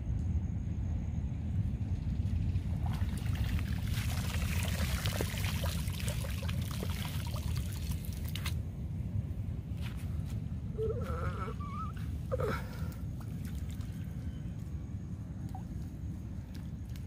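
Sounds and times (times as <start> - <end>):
low rumble: 0.0 - 17.0
water pouring and dripping: 2.5 - 8.6, 13.2 - 14.0.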